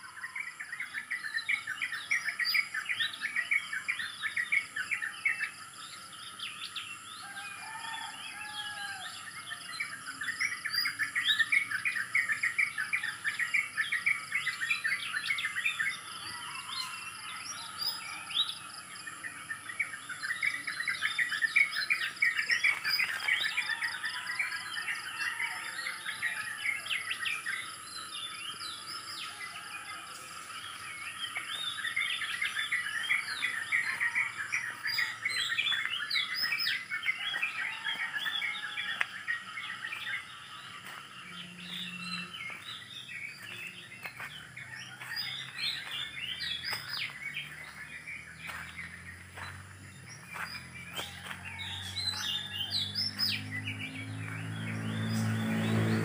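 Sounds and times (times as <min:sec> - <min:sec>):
small birds chirping: 0:26.1 - 0:56.0.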